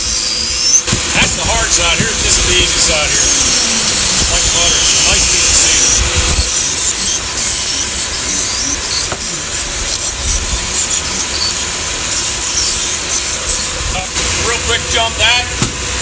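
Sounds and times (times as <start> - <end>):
rotary tool grinding cork: 0.0 - 0.8, 2.1 - 13.8.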